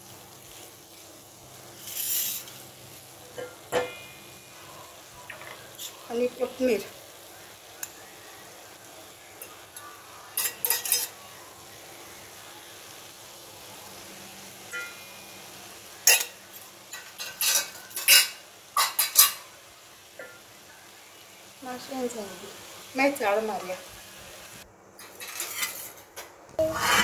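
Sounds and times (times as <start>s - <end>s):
faint sizzle: 0.0s - 27.0s
spoon scraping frying pan: 1.6s - 2.6s, 9.4s - 11.4s, 16.0s - 19.5s, 25.0s - 27.0s.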